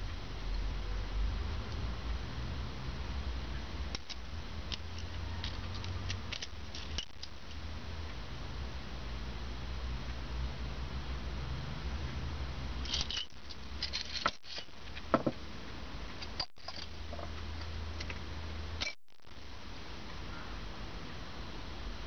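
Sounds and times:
steady low hum: 0.0s - 22.0s
steel discs clicking together: 3.9s - 7.6s.

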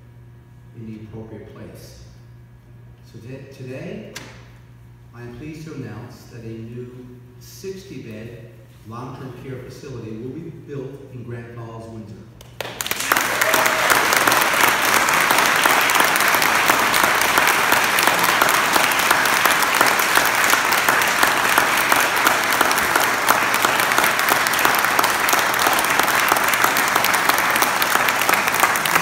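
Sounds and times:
crowd applauding: 12.6s - 29.0s.

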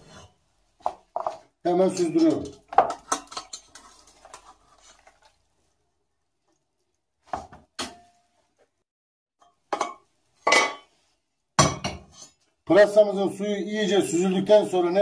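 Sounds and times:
wooden spoon scraping pot: 0.0s - 5.4s.

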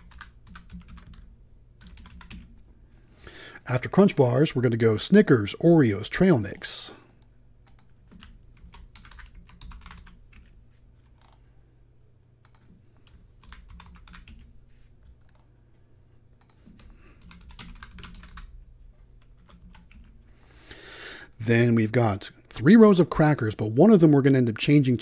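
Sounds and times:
typing on computer keyboard: 0.0s - 2.5s, 7.6s - 11.4s, 12.4s - 14.5s, 16.4s - 18.5s, 19.2s - 20.2s.

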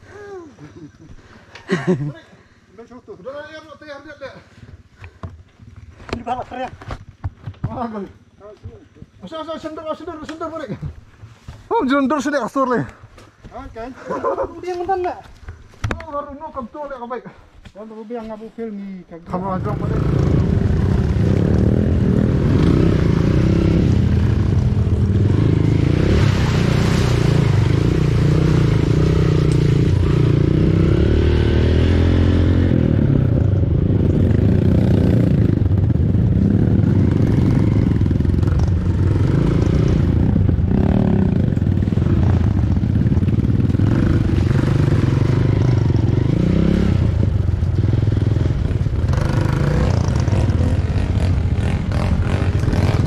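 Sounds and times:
dirt bike engine revving: 19.4s - 53.0s.

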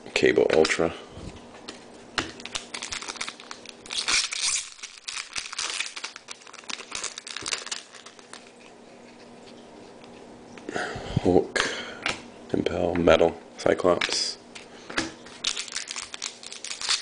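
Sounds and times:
foil wrapper tearing and crinkling: 2.4s - 8.7s, 15.4s - 17.0s.

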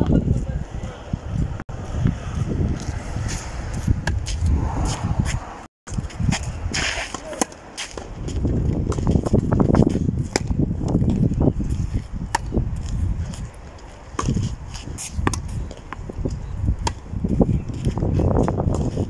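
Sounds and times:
low rumble: 1.2s - 5.7s
tennis balls struck by rackets: 5.9s - 11.3s, 12.3s - 13.0s, 14.1s - 17.1s.

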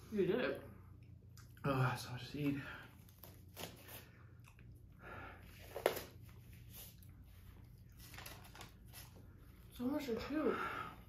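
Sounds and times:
person chewing: 0.9s - 1.8s, 2.9s - 9.2s.

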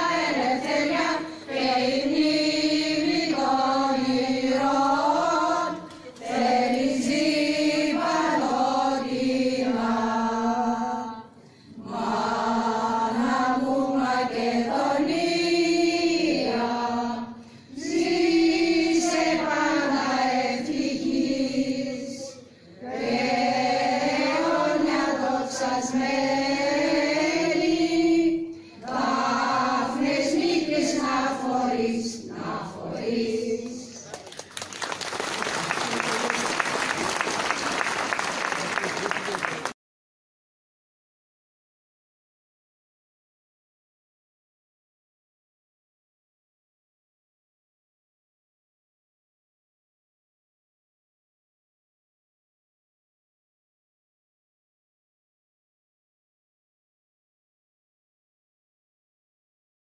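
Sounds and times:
choir singing: 0.0s - 34.0s.

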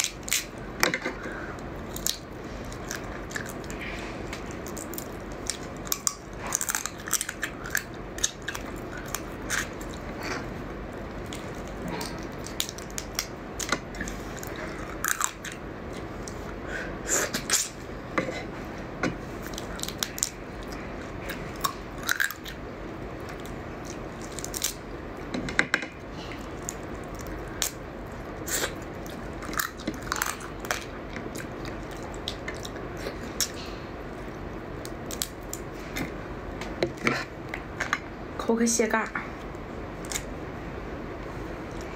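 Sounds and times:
chewing crab legs: 0.0s - 16.6s, 17.2s - 25.3s, 26.0s - 36.3s
crab shell cracking: 4.3s - 10.1s, 11.2s - 15.6s, 19.4s - 20.4s, 23.2s - 24.9s, 34.8s - 35.7s.

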